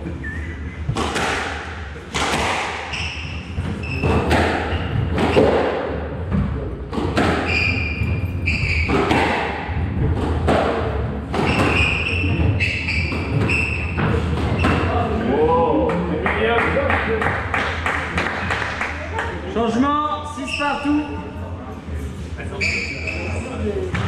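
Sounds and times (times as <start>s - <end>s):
squash ball hitting rackets and walls: 0.9s - 15.3s
shoes squeaking on wooden floor: 2.9s - 5.5s, 7.4s - 9.1s, 11.4s - 15.0s.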